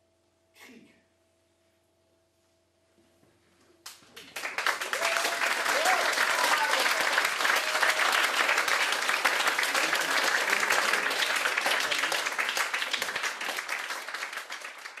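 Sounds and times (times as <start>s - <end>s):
audience applauding: 3.9s - 15.0s.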